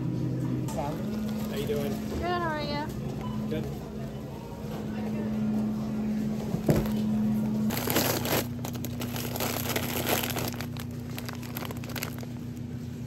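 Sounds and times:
low hum: 0.0s - 13.0s
plastic bags crinkling: 7.6s - 12.7s.

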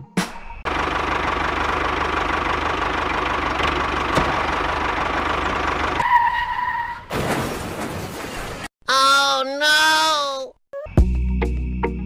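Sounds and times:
tractor engine knocking: 0.7s - 6.0s.

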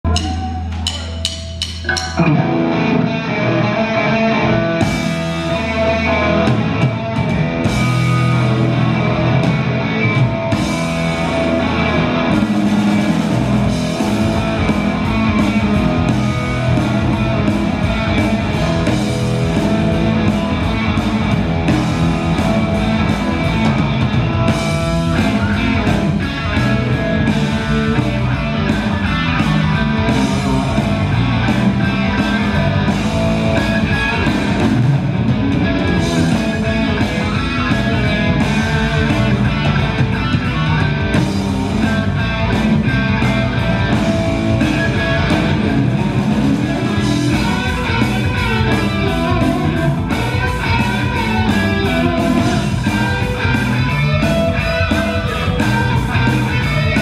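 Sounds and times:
drum kit with cymbals: 0.0s - 2.8s, 4.8s - 57.0s
bass guitar: 0.0s - 57.0s
overdriven electric guitars: 0.0s - 57.0s.

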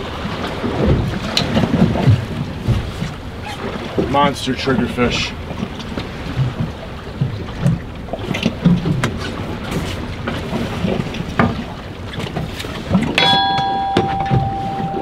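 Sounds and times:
water slapping boat hull: 0.0s - 15.0s
wind: 0.0s - 15.0s
steady high tone: 13.2s - 15.0s.

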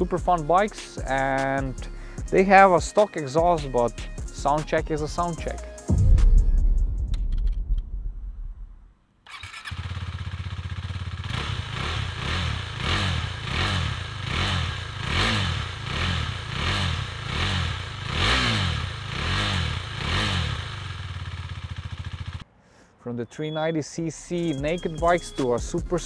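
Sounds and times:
motorcycle engine throttle blips: 9.3s - 22.4s.

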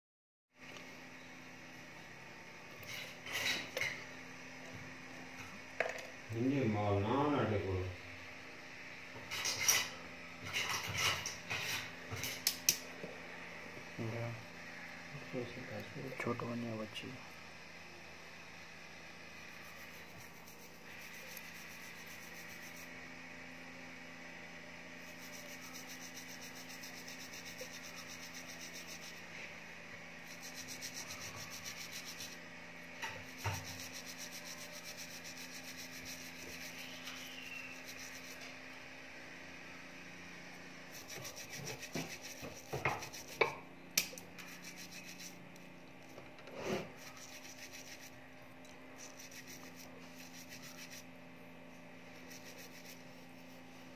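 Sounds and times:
fingers rubbing small object: 19.5s - 22.9s, 25.0s - 29.2s, 30.2s - 32.4s, 33.2s - 38.4s, 40.9s - 45.7s, 46.6s - 48.2s, 49.0s - 51.2s, 52.0s - 53.7s.

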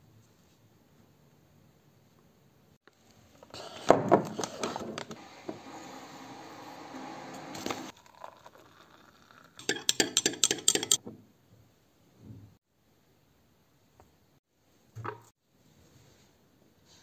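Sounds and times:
powder pouring hiss: 5.2s - 8.7s
spoon clinking against glass: 9.6s - 11.0s.

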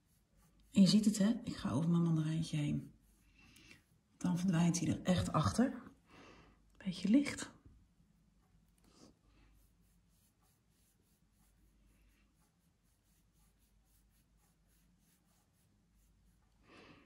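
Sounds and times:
paintbrush swishing on canvas: 0.0s - 1.2s, 2.8s - 4.4s, 9.0s - 16.6s.

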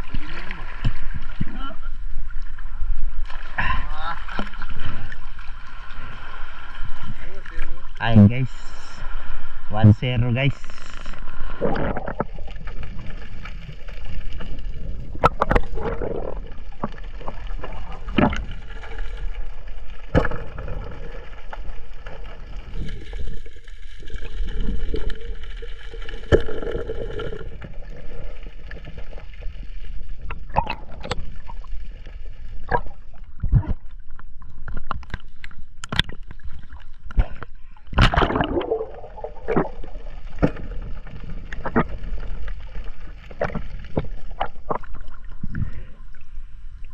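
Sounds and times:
muffled underwater rushing: 0.0s - 46.9s.

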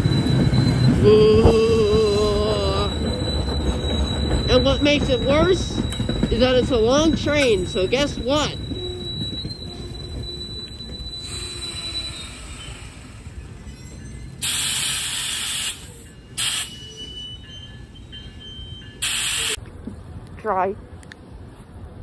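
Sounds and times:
high wheel squeal: 0.0s - 19.6s
train wheels rumbling on rails: 0.0s - 22.0s
air hiss burst: 14.4s - 16.8s, 19.0s - 19.6s.

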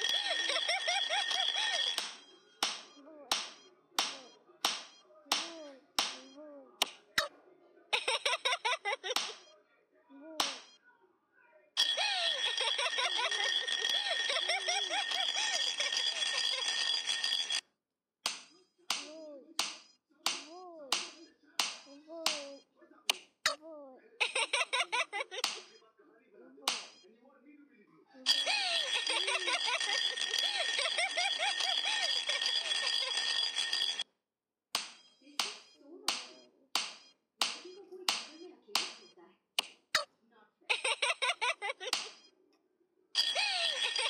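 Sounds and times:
ball slaps: 2.0s - 7.3s, 9.2s - 9.4s, 10.4s - 10.7s, 18.3s - 22.5s, 25.4s - 25.7s, 26.7s - 27.0s, 34.8s - 39.0s, 39.6s - 39.8s
cartoon babies babbling and giggling: 3.0s - 3.3s, 5.3s - 7.3s, 10.1s - 10.8s, 19.0s - 19.6s, 20.4s - 22.7s, 23.5s - 25.4s
baby cooing: 10.1s - 10.6s, 21.9s - 22.6s.

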